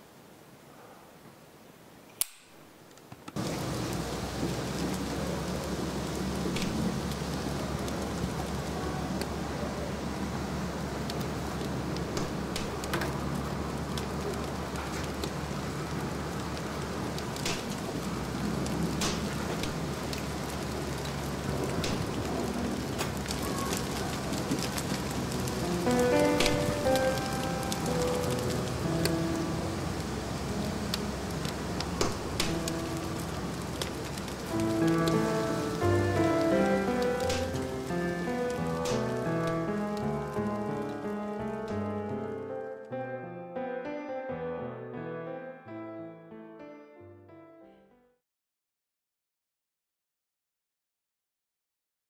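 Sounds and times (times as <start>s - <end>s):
sharp click: 2.2s - 2.6s
paper burning with crackling: 2.7s - 42.6s.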